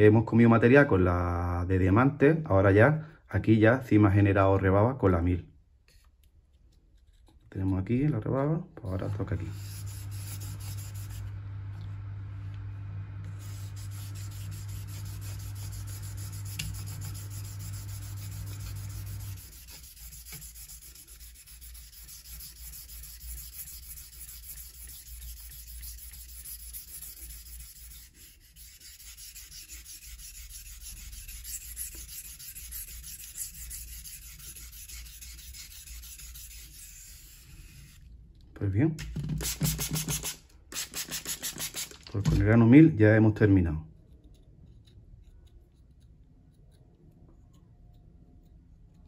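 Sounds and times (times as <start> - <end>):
steady low hum: 8.8 - 38.6
knife scraping on whetstone: 9.0 - 11.3, 13.4 - 38.0.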